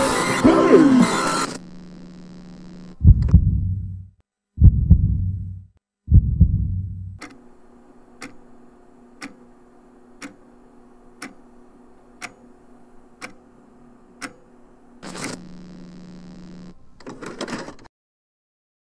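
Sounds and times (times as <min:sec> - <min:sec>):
low steady hum: 0:01.7 - 0:07.9, 0:15.4 - 0:16.8
heartbeat thump: 0:03.0 - 0:07.2
clock ticking: 0:09.2 - 0:09.4.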